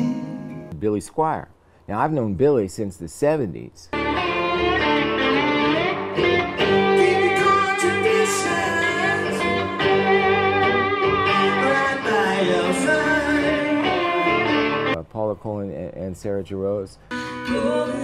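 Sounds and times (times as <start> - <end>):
two electric guitars playing: 3.9 - 15.0, 17.1 - 18.0.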